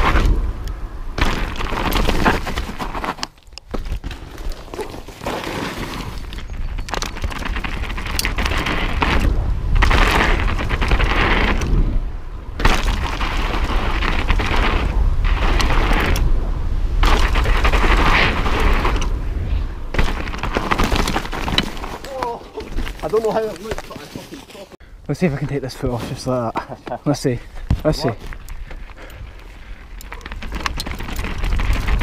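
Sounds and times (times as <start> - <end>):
bike rattling over bumps: 0.0 - 24.6, 27.6 - 32.0
tyre noise on dirt: 0.0 - 32.0
wind buffeting microphone: 6.0 - 23.5, 27.4 - 32.0.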